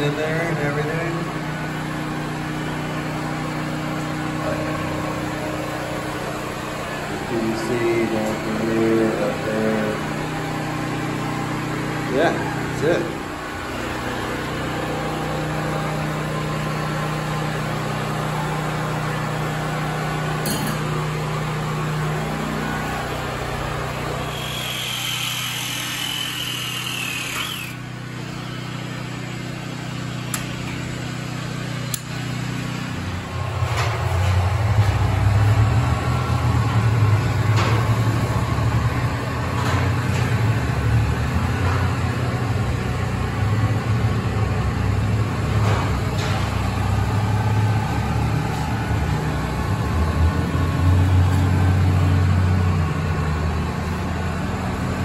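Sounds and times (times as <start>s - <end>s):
thin high whine: 24.2s - 27.8s.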